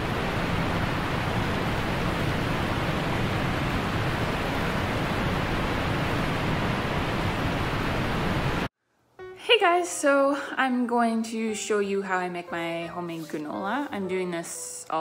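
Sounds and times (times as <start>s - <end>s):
stormy surf rushing: 0.0s - 8.7s.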